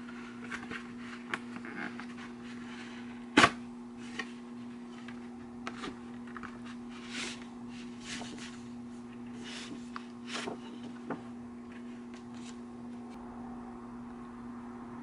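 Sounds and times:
steady low hum: 0.0s - 15.0s
cardboard snap: 3.3s - 3.6s.

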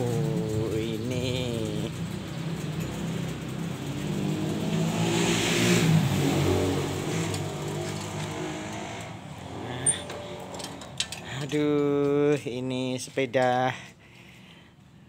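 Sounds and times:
vehicle engine passing by: 0.0s - 11.6s.

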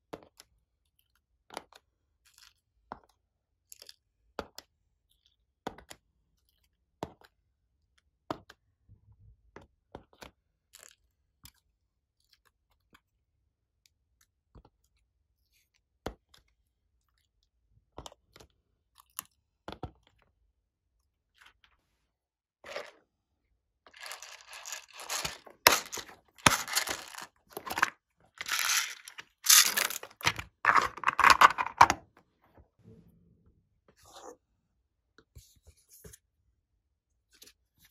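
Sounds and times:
crackling crunching noises: 23.9s - 31.7s.

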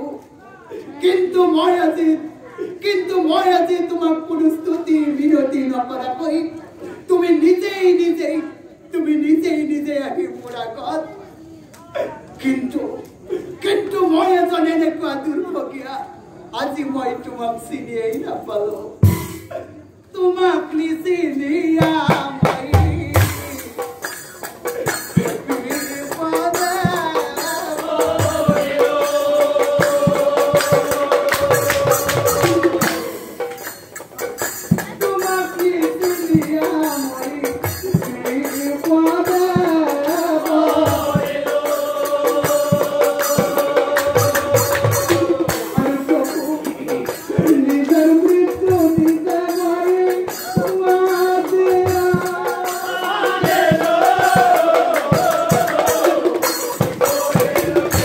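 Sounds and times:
drum beats: 19.0s - 19.6s, 21.8s - 58.0s
men singing: 21.4s - 23.9s, 24.6s - 33.6s, 35.0s - 58.0s
hand cymbals: 22.8s - 58.0s.

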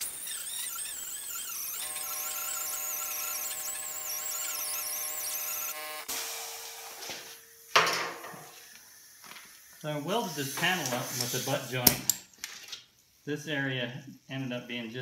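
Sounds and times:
air grinder whining: 0.0s - 7.7s.

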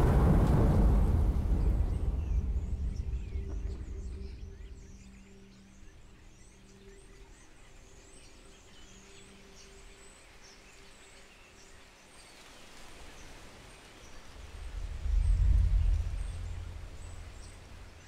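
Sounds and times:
low hum tones: 0.0s - 7.4s, 14.4s - 18.0s.

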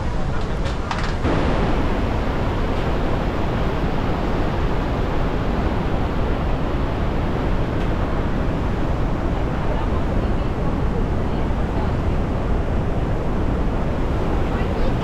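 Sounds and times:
waterfall rushing: 1.2s - 11.8s.

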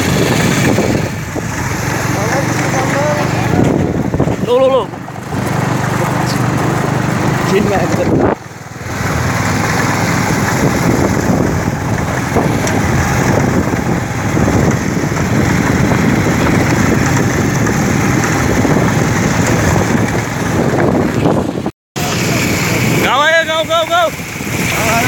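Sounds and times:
motorcycle running at speed: 0.0s - 25.0s
wind noise on microphone: 0.0s - 25.0s.

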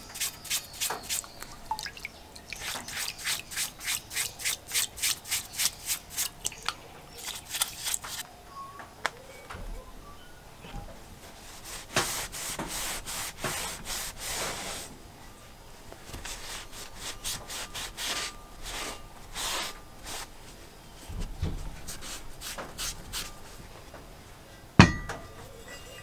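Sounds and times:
heavy metal part knocking down: 24.8s - 25.5s.

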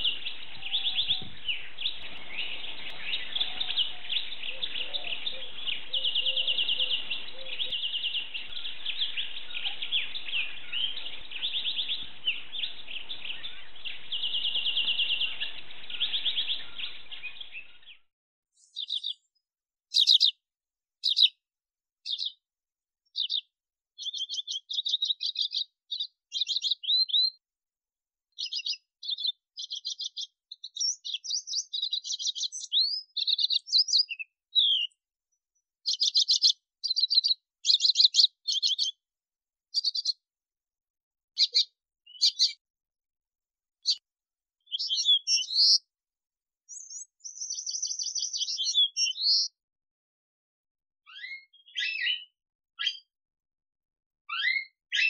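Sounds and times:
bird twittering song: 0.0s - 20.4s, 21.0s - 21.4s, 22.0s - 22.4s, 23.1s - 27.4s, 28.3s - 35.0s, 35.8s - 39.0s, 39.7s - 40.2s, 41.4s - 42.6s, 43.8s - 44.0s, 44.6s - 45.9s, 46.7s - 49.6s, 51.1s - 53.1s
bird short high chirps: 18.6s - 19.3s, 19.9s - 20.4s, 21.0s - 21.3s, 22.1s - 22.4s, 23.1s - 27.4s, 28.4s - 35.0s, 35.8s - 39.0s, 39.7s - 40.2s, 41.4s - 42.6s, 44.7s - 45.8s, 46.7s - 49.5s, 51.1s - 53.1s, 54.3s - 55.0s.

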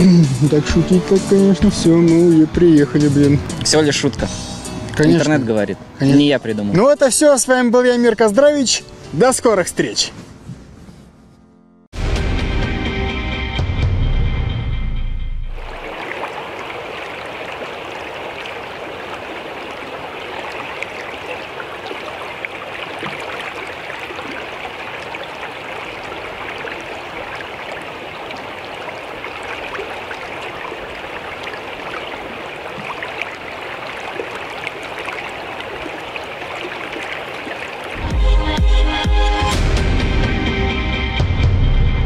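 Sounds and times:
shallow stream running: 0.0s - 8.6s, 15.6s - 39.0s.

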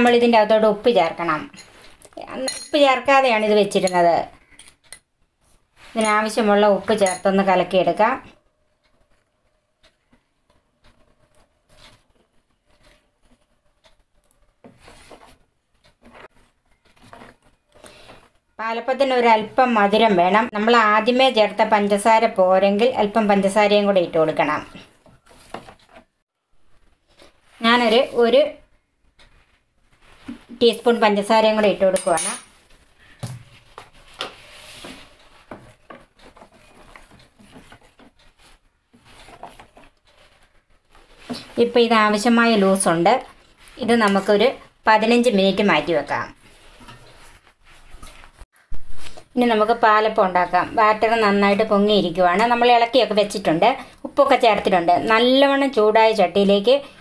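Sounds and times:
spoon scraping in steel bowl: 5.8s - 7.4s
spoon stirring thick batter: 32.5s - 48.3s.

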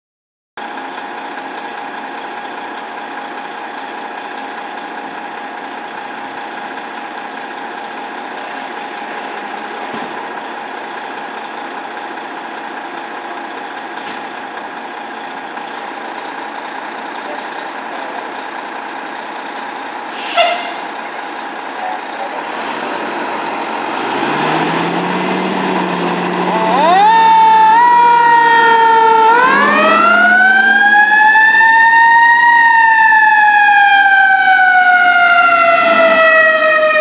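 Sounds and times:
diesel engine idling: 0.6s - 37.0s.

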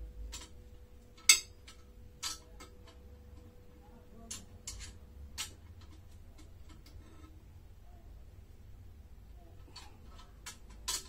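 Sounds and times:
faint steady hum: 0.0s - 11.0s
metal parts clicking and knocking: 0.2s - 3.5s, 4.2s - 7.4s, 9.6s - 11.0s.

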